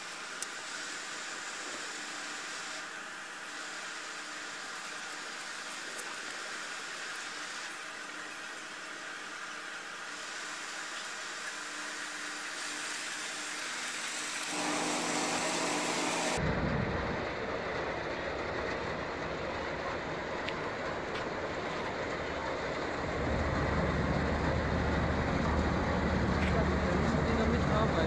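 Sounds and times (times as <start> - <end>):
ship engine hum and rumble: 14.5 - 28.0.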